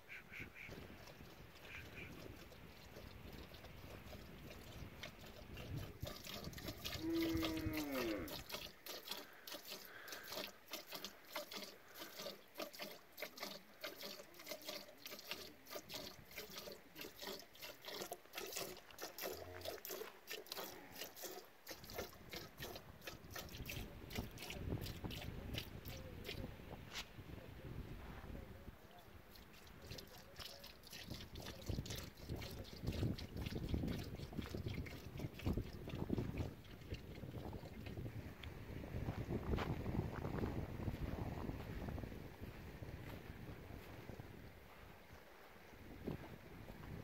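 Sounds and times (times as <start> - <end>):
milk squirting into plastic container: 0.7 - 26.5, 29.3 - 38.0.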